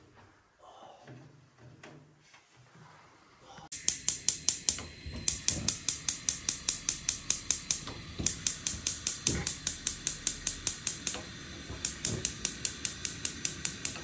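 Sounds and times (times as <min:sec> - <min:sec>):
gas hob igniter clicking: 0:03.7 - 0:14.0.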